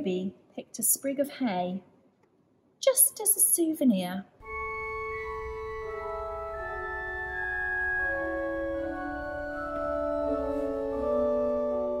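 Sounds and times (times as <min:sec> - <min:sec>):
organ playing slow chords: 0:04.4 - 0:12.0.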